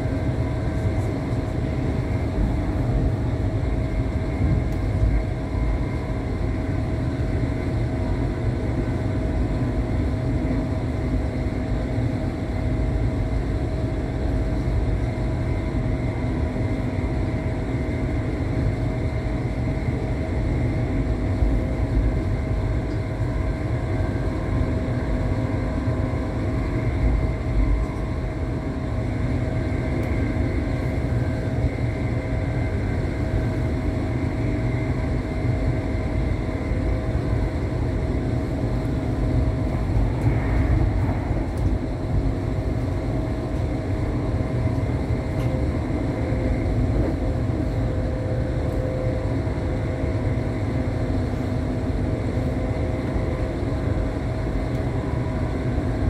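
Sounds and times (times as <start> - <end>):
constant hum: 0.0 - 56.0
train rumble inside carriage: 0.0 - 56.0.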